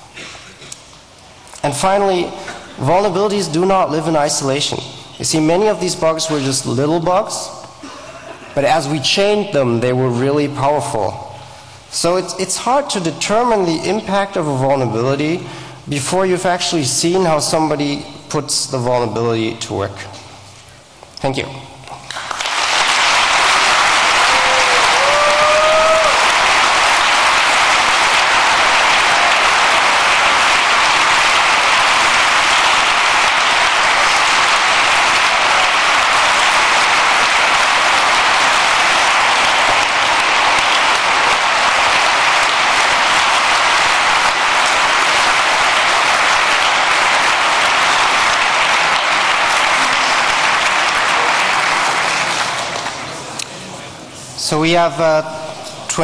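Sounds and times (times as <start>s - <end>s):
audience applauding: 22.1s - 53.3s.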